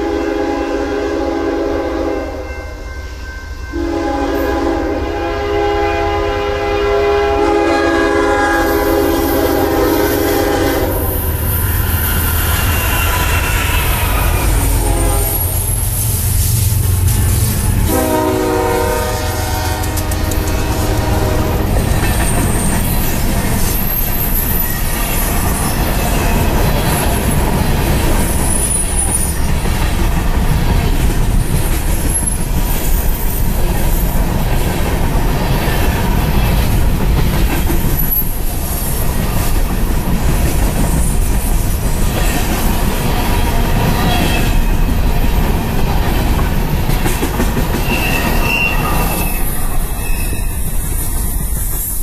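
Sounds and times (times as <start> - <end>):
train wheels rumbling on rail: 3.7 - 52.0
high-pitched wheel squeals: 10.0 - 16.2, 22.2 - 26.1, 47.8 - 52.0.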